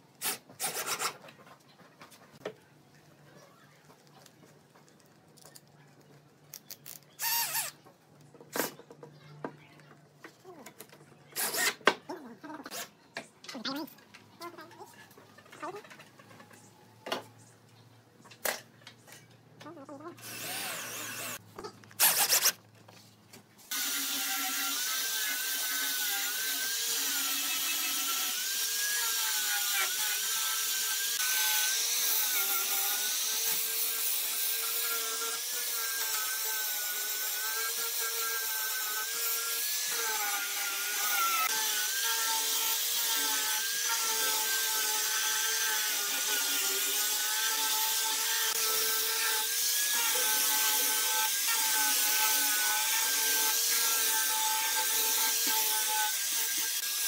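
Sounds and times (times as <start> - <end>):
power tool cutting wood: 11.4 - 11.9, 20.2 - 21.4, 22.0 - 22.6, 23.7 - 57.0.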